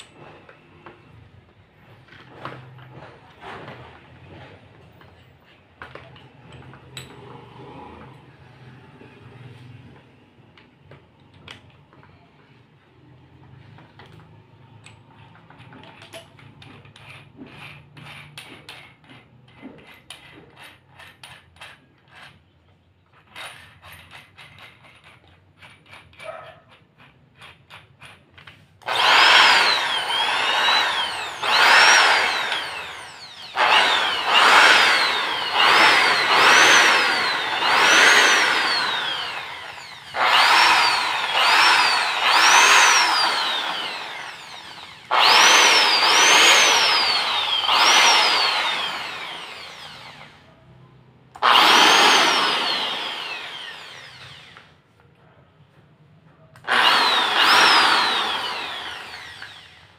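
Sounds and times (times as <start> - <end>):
drill handling clicks and rattles: 5.8 - 7.4, 13.8 - 50.4, 51.4 - 54.8, 56.6 - 59.9
drill motor whining: 28.8 - 50.4, 51.4 - 54.7, 56.6 - 59.9.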